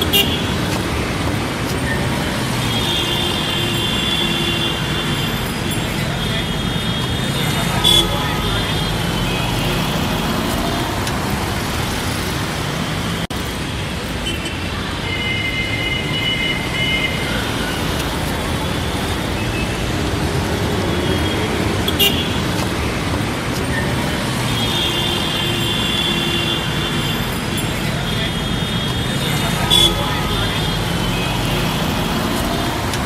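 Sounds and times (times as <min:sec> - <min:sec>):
car horns: 0:00.0 - 0:00.9, 0:02.0 - 0:11.0, 0:20.5 - 0:22.7, 0:23.9 - 0:33.0
hum of road traffic: 0:00.0 - 0:33.0.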